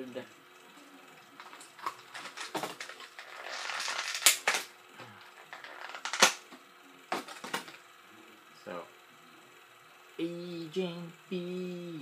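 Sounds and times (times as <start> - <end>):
plastic packaging crinkling: 1.4 - 4.6
sharp plastic cracks: 3.8 - 4.7, 6.0 - 6.5.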